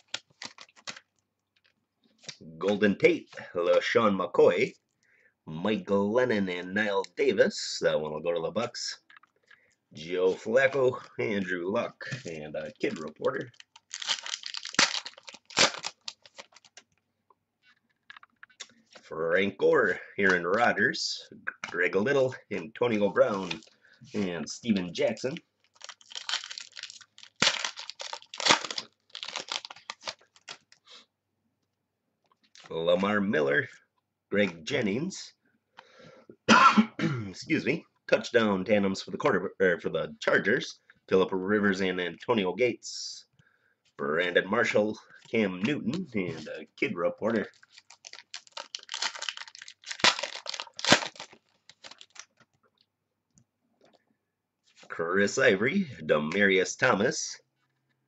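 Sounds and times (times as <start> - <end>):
plastic sleeves crinkling: 0.0 - 2.4, 10.2 - 17.0, 21.5 - 31.0, 45.1 - 52.9
trading cards rustling and clicking: 12.1 - 17.0, 25.6 - 30.8, 47.3 - 52.6.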